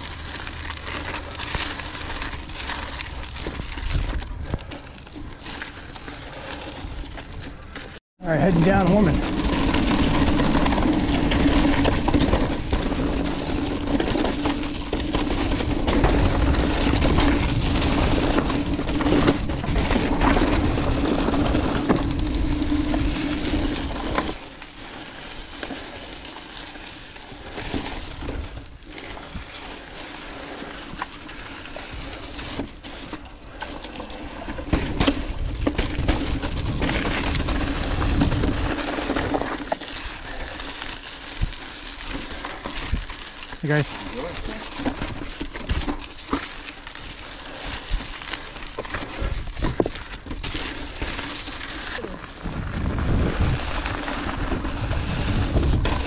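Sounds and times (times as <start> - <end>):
bike rattling over rocks: 0.0 - 56.0
tyres crunching over gravel: 0.0 - 56.0
wind rushing over microphone: 52.4 - 56.0.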